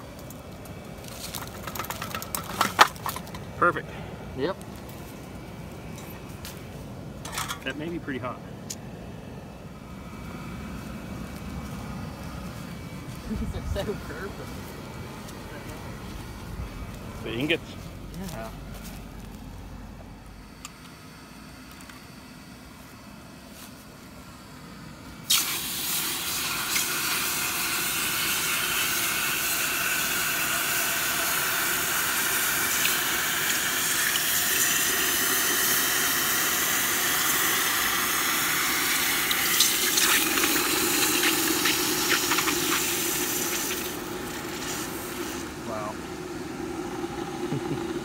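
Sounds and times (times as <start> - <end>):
crackles of hot metal in water: 0.0 - 3.7, 25.3 - 45.7
loud hiss of steam: 25.2 - 48.0.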